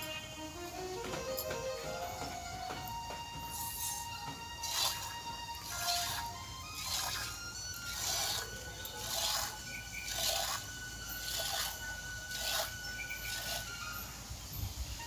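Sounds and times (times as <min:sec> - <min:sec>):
milk squirting into metal bowl: 0:04.6 - 0:13.8.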